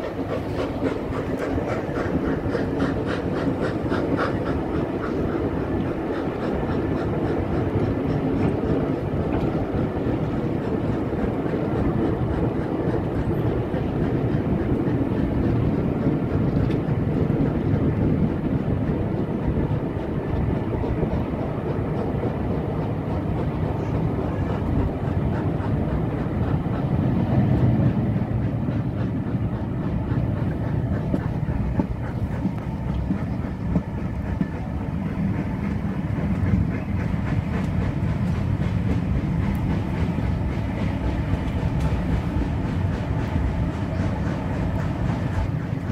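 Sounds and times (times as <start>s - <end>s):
train wheels rumbling on rails: 0.0s - 45.9s.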